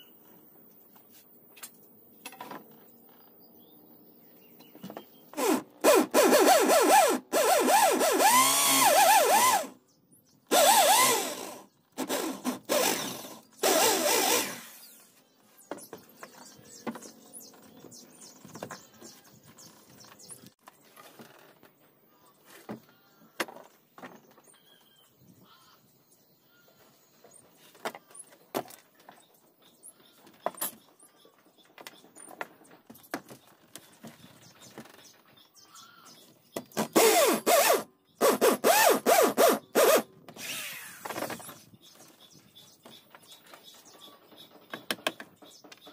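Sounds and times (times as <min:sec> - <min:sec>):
electric drill boring into wood: 0:05.4 - 0:09.7, 0:10.5 - 0:14.9, 0:37.0 - 0:41.3.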